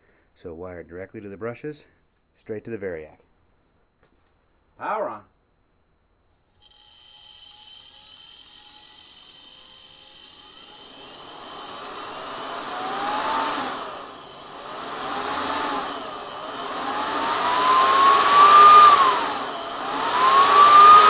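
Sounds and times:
electric motor whine: 6.6s - 21.0s.

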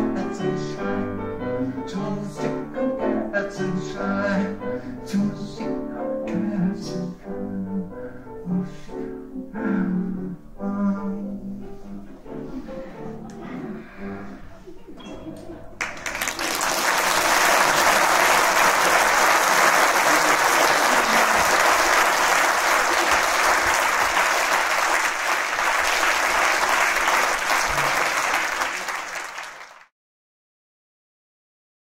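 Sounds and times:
audience applause: 15.8s - 29.9s.

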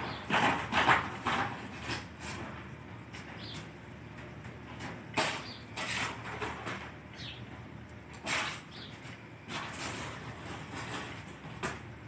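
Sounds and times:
cardboard box scraping on tiles: 9.5s - 11.3s.

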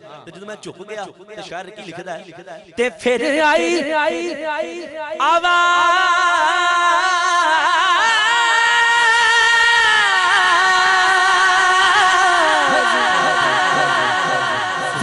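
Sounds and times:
man singing unaccompanied: 2.8s - 15.0s.

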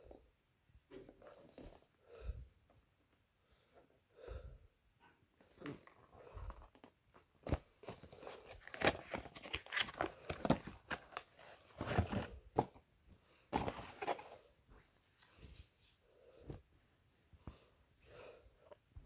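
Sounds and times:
cardboard box rustling and scraping: 7.5s - 12.8s, 13.6s - 14.3s.

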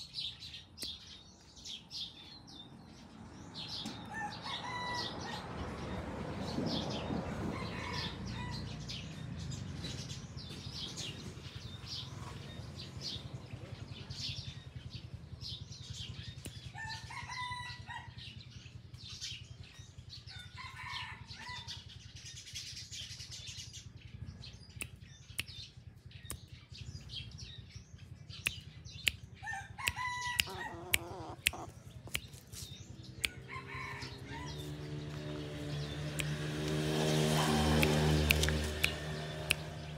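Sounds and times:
small birds chirping: 0.0s - 39.9s
rooster crowing: 4.1s - 5.5s, 7.4s - 8.8s, 29.4s - 31.7s, 33.2s - 35.0s
sharp clicks: 37.7s - 39.9s.

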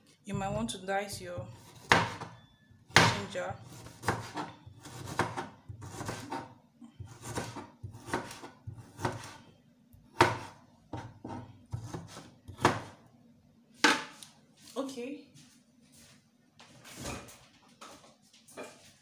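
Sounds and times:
knife chopping on plastic board: 0.3s - 9.4s, 10.1s - 13.0s.

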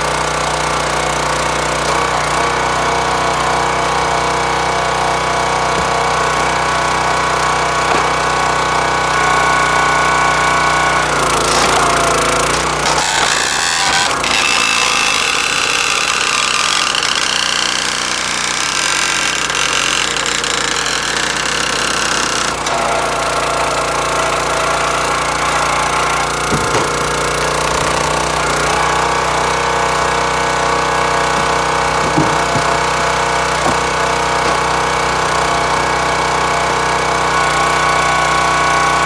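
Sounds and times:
log splitter engine running: 0.0s - 39.0s
wood cracking on wedge: 5.6s - 9.6s, 11.0s - 35.4s.

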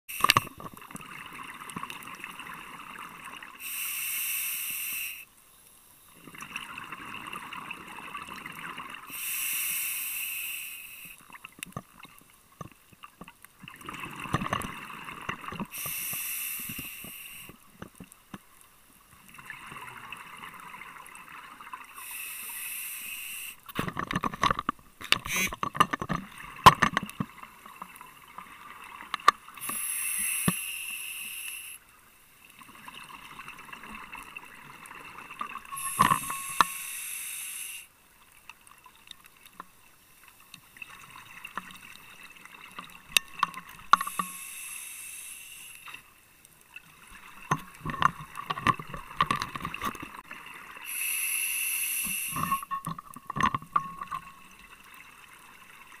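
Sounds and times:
regulator inhalations: 3.6s - 5.3s, 9.1s - 11.2s, 15.7s - 17.6s, 22.0s - 23.7s, 29.6s - 31.8s, 35.7s - 37.9s, 44.0s - 45.9s, 50.8s - 52.7s.

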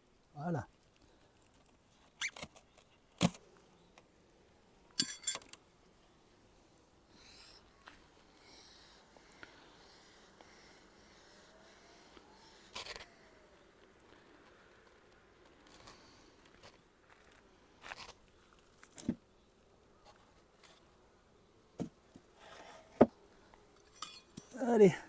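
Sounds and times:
hive lid squeaks and knocks: 2.2s - 2.5s
bees buzzing: 6.6s - 14.7s.

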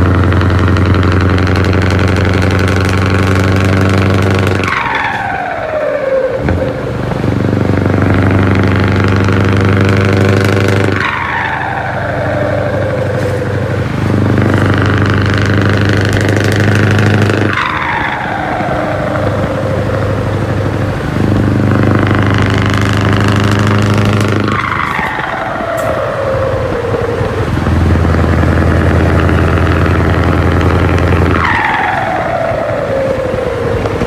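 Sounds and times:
diesel truck engine droning: 0.0s - 34.0s
turbo whistle spooling down: 21.6s - 34.0s.

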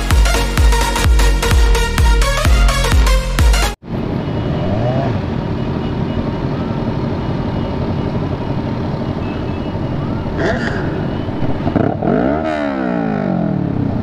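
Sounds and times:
electronic dance music: 0.0s - 3.8s
motorcycle engines idling: 3.9s - 14.0s.

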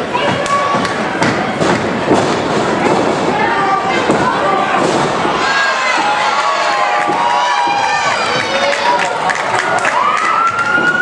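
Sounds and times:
crowd shouting: 3.3s - 11.0s.

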